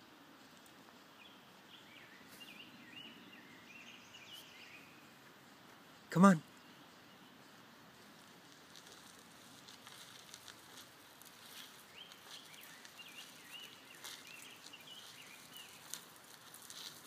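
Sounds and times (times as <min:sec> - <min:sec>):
bird chirping: 0:01.1 - 0:05.3, 0:11.4 - 0:16.1
paws and wheels on gravel: 0:07.8 - 0:17.0.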